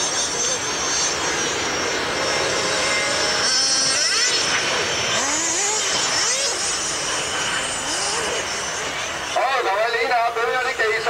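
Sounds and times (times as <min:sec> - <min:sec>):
model car motor whining: 0:02.3 - 0:09.2.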